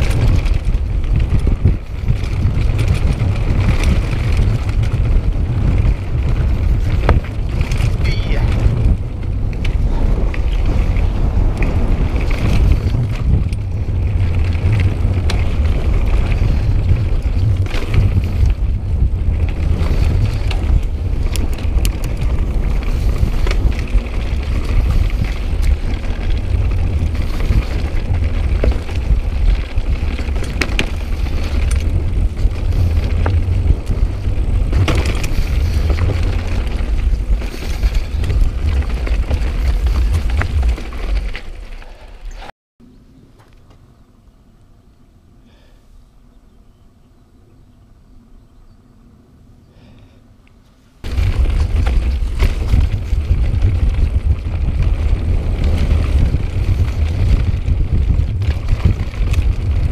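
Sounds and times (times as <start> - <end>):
bike clicks and rattles: 0.0 - 42.5, 49.8 - 59.9
wind noise on microphone: 0.0 - 42.5, 50.9 - 59.9
bike tyre noise on dirt: 0.0 - 46.0, 49.7 - 59.9.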